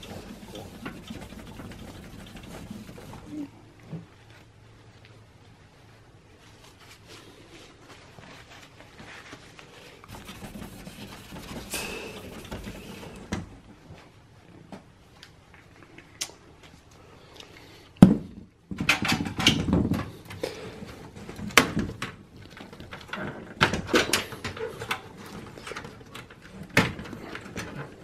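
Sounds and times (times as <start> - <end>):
cables rustling and clicking: 20.0 - 28.0.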